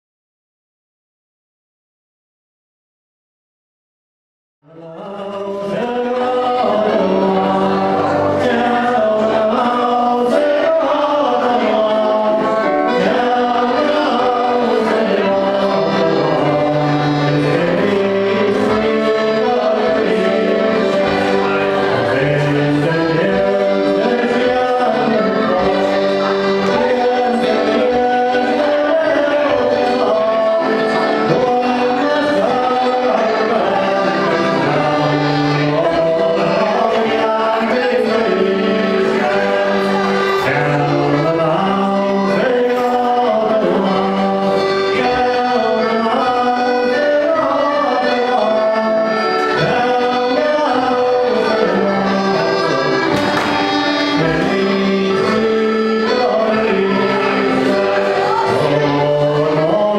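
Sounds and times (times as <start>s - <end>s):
voices singing sustained notes: 4.7s - 59.9s.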